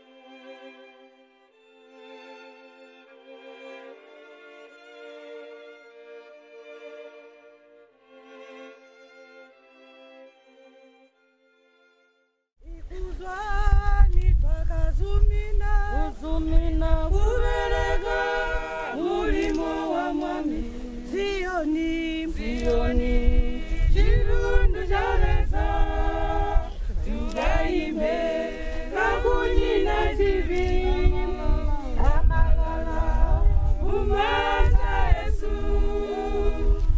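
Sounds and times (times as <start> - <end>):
group singing a hymn unaccompanied: 17.1 - 36.9.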